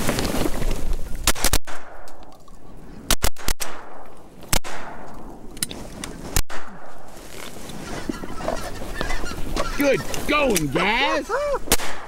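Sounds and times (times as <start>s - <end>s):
shotgun blasts: 1.2s - 2.3s, 3.1s - 5.4s, 6.4s - 7.2s, 11.6s - 12.0s.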